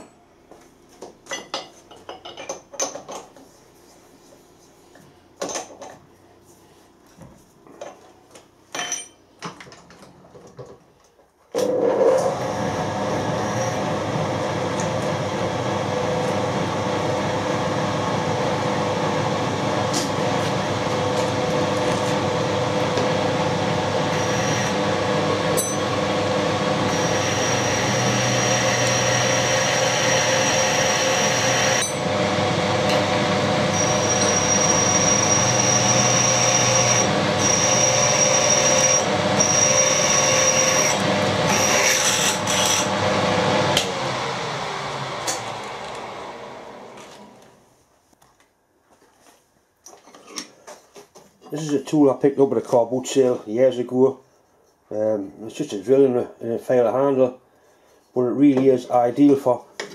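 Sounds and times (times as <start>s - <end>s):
milling machine drilling steel: 23.8s - 24.9s, 25.5s - 43.0s.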